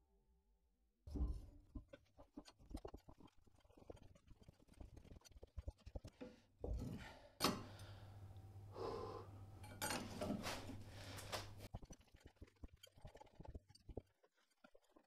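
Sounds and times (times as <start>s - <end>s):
faint knocks and clinks: 9.6s - 10.8s.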